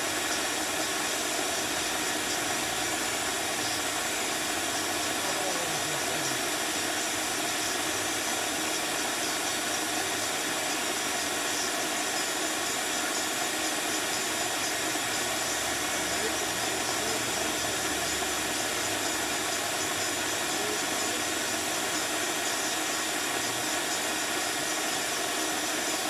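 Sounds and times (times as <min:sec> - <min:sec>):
vacuum running: 0:00.0 - 0:26.0.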